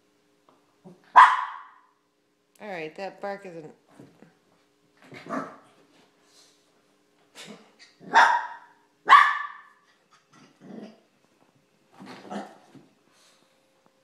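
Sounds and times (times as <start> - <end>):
small dog barking: 1.1 - 1.8, 5.2 - 5.6, 8.0 - 9.8.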